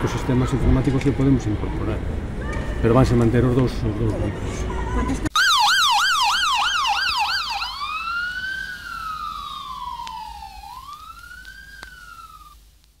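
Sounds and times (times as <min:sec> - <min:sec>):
police siren: 0:05.4 - 0:12.6.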